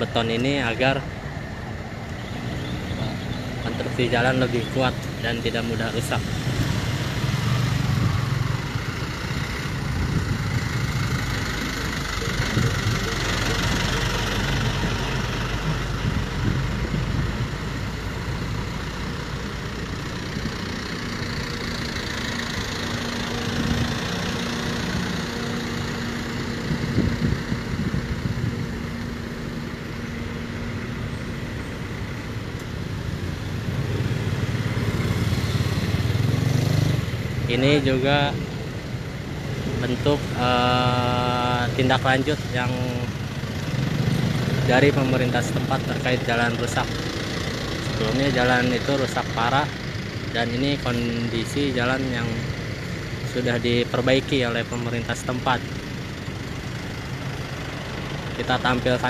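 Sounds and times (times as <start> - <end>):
steady engine hum: 0.0 - 59.0
traffic engines idling: 0.0 - 59.0.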